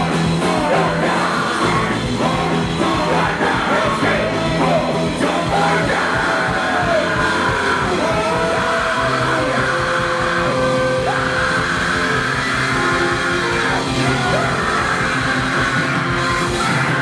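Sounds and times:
fast drumbeat: 0.0 - 17.0
ska-punk band playing live: 0.0 - 17.0.

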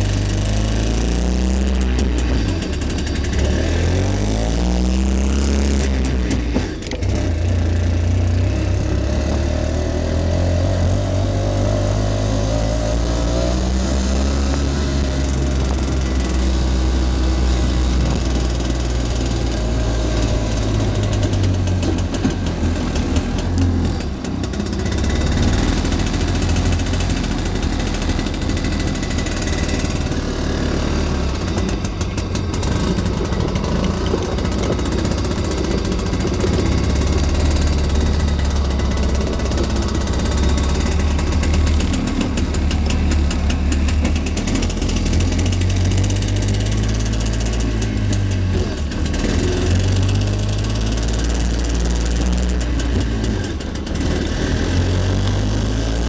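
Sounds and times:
two-stroke engine running: 0.0 - 56.0.

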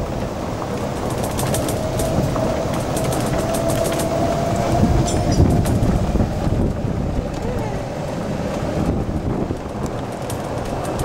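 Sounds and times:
tyres rumbling on pavement: 0.0 - 11.0
light rattling clicks: 0.7 - 4.2, 9.5 - 11.0.

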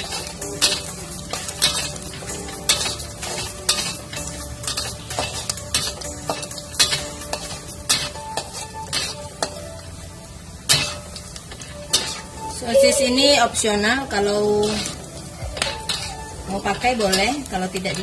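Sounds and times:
metal spatula scraping a wok: 0.0 - 18.0
sausages sizzling in oil: 0.0 - 18.0.

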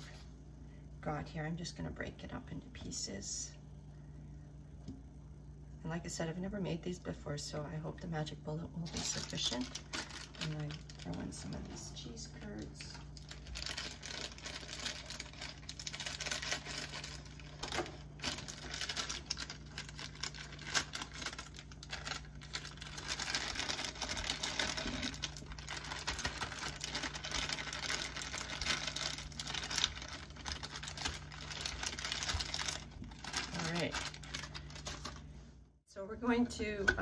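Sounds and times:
plastic bag crinkling: 8.9 - 35.3.

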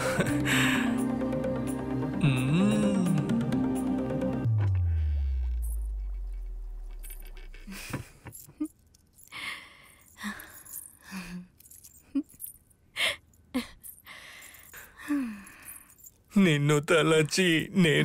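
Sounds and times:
woman giggling: 0.0 - 1.0, 7.4 - 8.7, 12.0 - 13.9
deep bass tone: 2.1 - 7.6.

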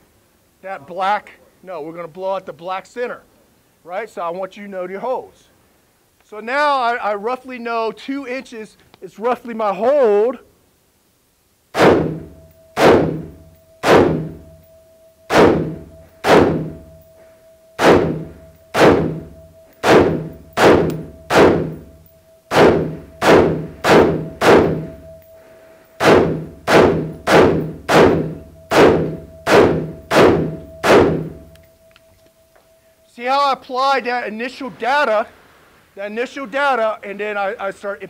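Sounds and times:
faint steady hum: 0.0 - 38.0
rifle shots echoing indoors: 11.8 - 14.6, 15.3 - 17.1, 17.8 - 25.2, 26.0 - 31.6.

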